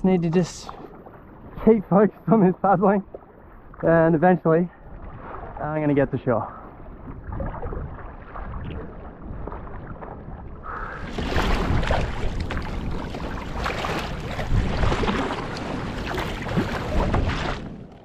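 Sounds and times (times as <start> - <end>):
paddle blades splashing: 0.0 - 18.0
water washing around hull: 0.0 - 18.0
wind rumbling on microphone: 3.0 - 18.0.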